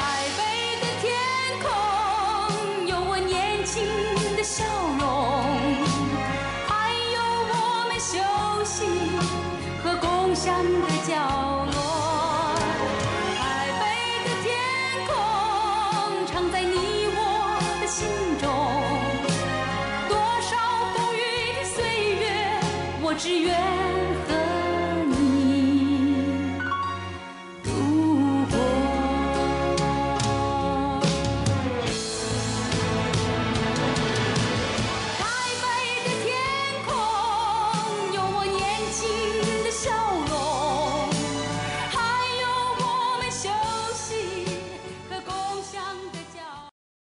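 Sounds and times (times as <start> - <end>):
pop song with singing: 0.0 - 32.4, 33.0 - 46.7
instrumental backing with bass: 0.0 - 46.4
person singing with vibrato: 20.8 - 31.2.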